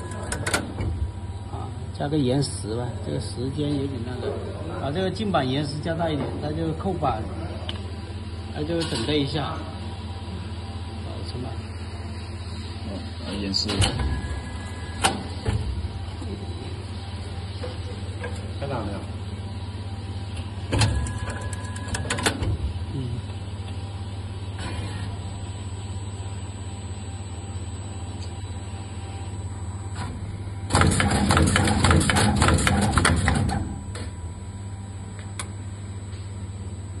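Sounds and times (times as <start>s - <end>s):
steady low hum: 0.0s - 37.0s
machine clicking and clattering: 30.7s - 33.7s.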